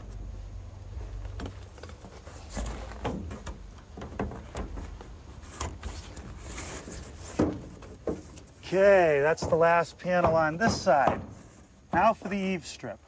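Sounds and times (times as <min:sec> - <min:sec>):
plastic roof panel knocks and scrapes: 0:01.4 - 0:08.6, 0:09.3 - 0:12.3.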